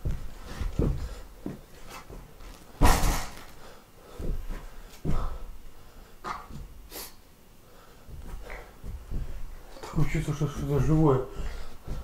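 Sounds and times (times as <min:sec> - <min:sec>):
knocks and thumps: 0:00.0 - 0:03.5, 0:08.0 - 0:12.0.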